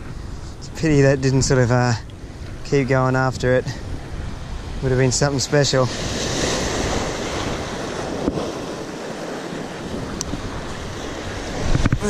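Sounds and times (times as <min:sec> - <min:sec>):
wind on microphone: 0:00.0 - 0:12.0
sea waves breaking over rocks: 0:03.4 - 0:12.0.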